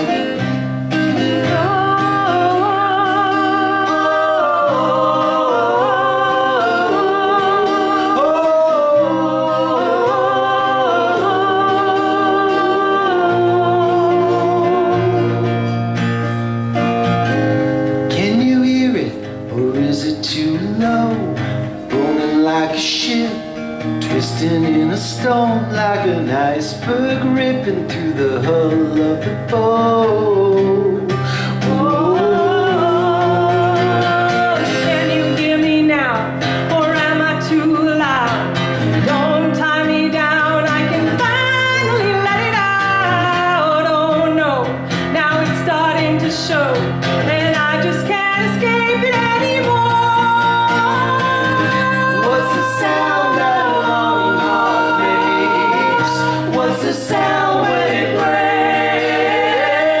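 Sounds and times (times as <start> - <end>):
people singing in harmony: 0.0 - 15.8, 24.1 - 35.9, 49.6 - 60.0
acoustic guitar: 0.0 - 60.0.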